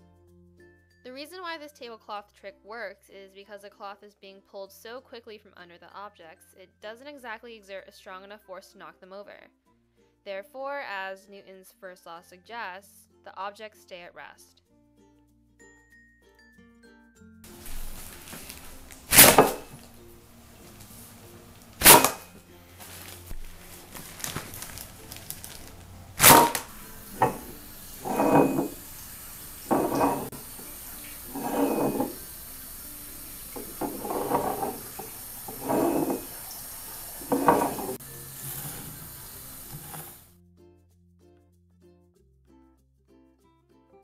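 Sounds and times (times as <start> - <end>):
objects clattering on wooden table: 17.6 - 39.0, 39.6 - 40.2.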